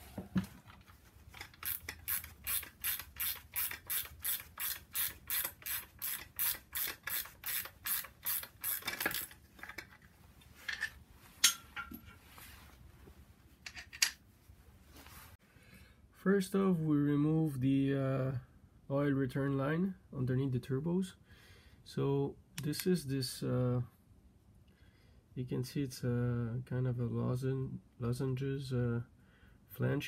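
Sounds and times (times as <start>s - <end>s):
ratchet wrench clicking: 1.4s - 9.4s.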